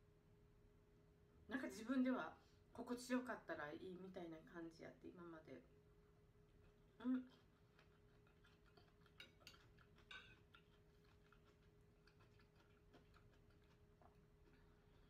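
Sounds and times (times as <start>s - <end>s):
steady low hum: 0.0s - 15.0s
soft eating clicks: 6.6s - 15.0s.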